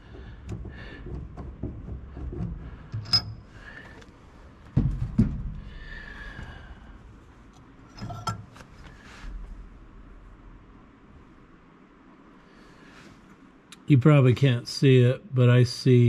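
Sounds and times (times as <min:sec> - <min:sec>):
metal clunks: 0:00.0 - 0:06.6, 0:07.9 - 0:08.9.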